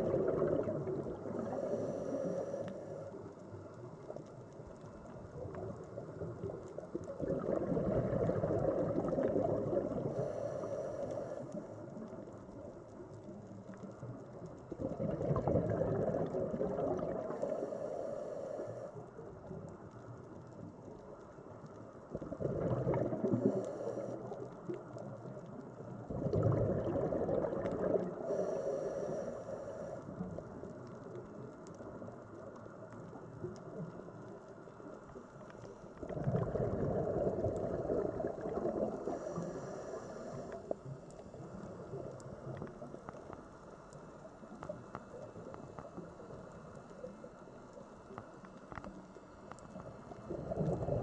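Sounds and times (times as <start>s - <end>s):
bubbling underwater exhales: 0.0s - 3.2s, 5.3s - 12.3s, 14.6s - 17.8s, 22.1s - 25.2s, 25.8s - 30.8s, 35.9s - 43.1s, 49.8s - 51.0s
regulator hissing inhale: 1.4s - 3.3s, 10.0s - 11.9s, 17.2s - 19.0s, 23.4s - 24.4s, 28.1s - 30.1s, 38.9s - 42.0s.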